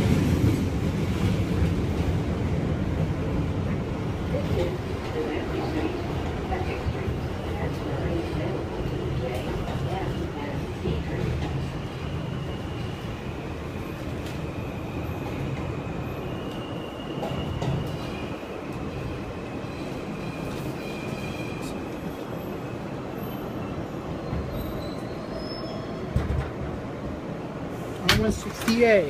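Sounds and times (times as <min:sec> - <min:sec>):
subway wheels on rail: 0:00.0 - 0:29.0
high wheel squeal: 0:19.6 - 0:26.1.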